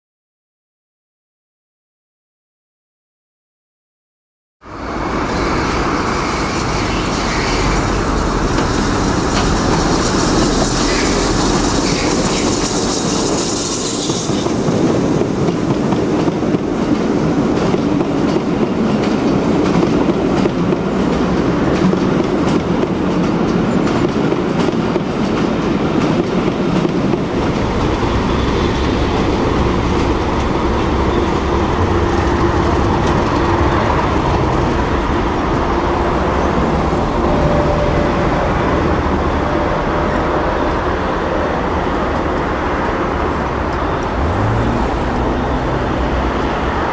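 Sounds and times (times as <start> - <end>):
steam hiss: 4.9 - 15.2
train wheels clacking over rail joints: 6.6 - 34.4
deep rumble: 27.3 - 40.2.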